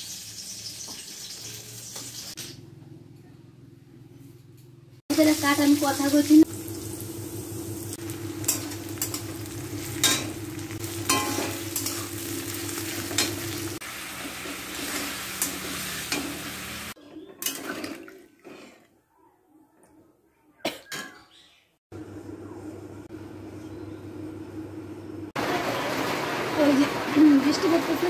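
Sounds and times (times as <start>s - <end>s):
food frying and sizzling: 0.0s - 2.7s, 5.1s - 18.0s, 24.3s - 28.0s.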